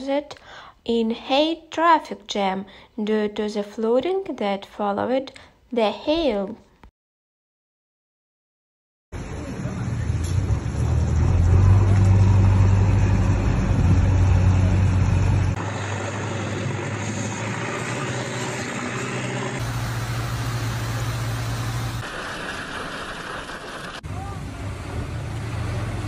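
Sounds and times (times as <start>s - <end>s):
low vehicle engine hum: 9.2s - 22.0s, 23.9s - 26.0s
hailstorm noise: 15.6s - 24.6s.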